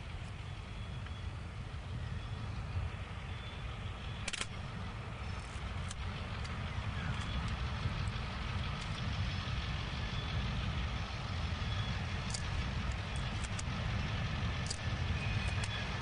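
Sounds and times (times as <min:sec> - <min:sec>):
train wagons rumbling by: 0:00.0 - 0:16.0.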